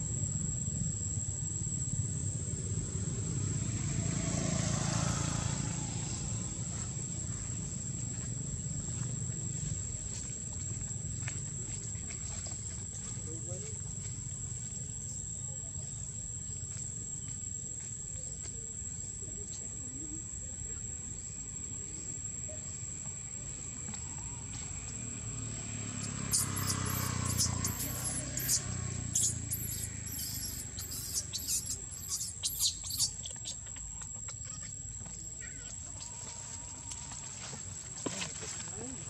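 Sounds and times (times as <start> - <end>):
baby monkey screaming: 26.0 - 34.8.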